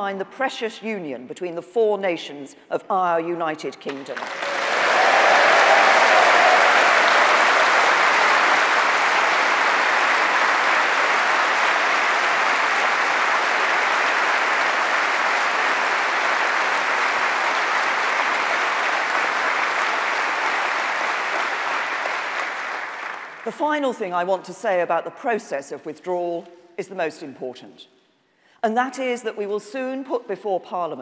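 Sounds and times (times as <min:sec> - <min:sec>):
large audience applauding: 0:04.2 - 0:23.5.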